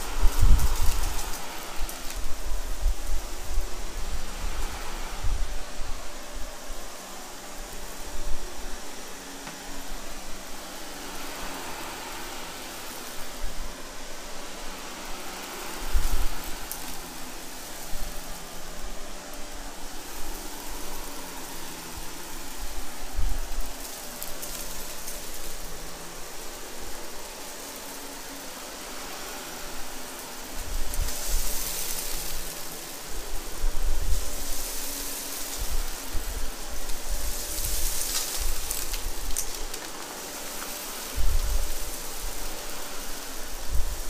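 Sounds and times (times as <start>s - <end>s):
upright vacuum running over carpet: 0.0s - 44.0s.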